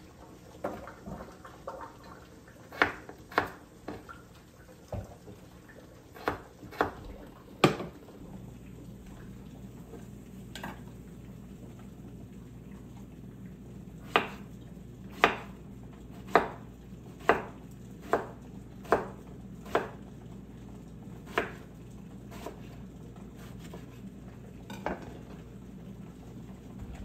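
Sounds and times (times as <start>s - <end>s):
steady low hum: 6.8s - 18.7s, 22.2s - 27.0s.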